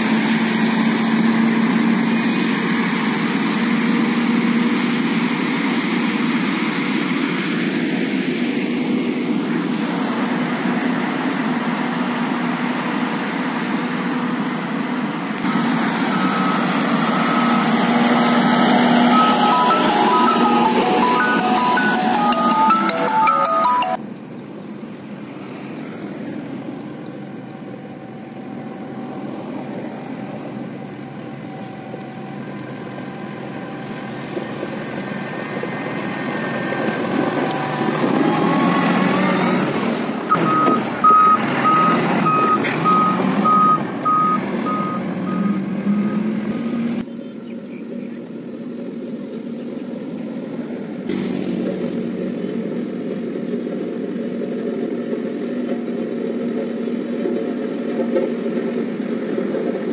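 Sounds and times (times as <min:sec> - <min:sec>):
diesel engine running: 0:00.0 - 0:47.0, 0:48.0 - 0:59.9
reversing beeper: 0:16.0 - 0:24.0, 0:40.3 - 0:46.8.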